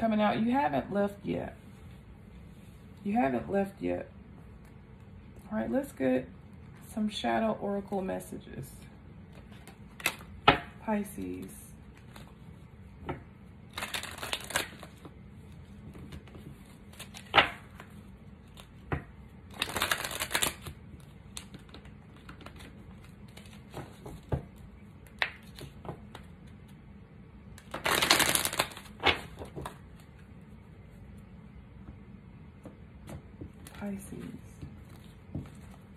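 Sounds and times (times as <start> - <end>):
cards riffle shuffling: 13.7 - 18.9, 19.5 - 24.4, 27.6 - 30.2.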